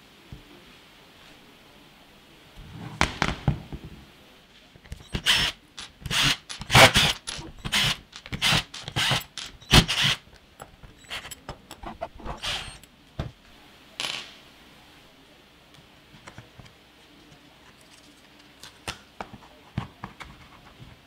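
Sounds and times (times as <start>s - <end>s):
screwdriver turning screws: 4.9s - 10.2s, 10.9s - 12.9s.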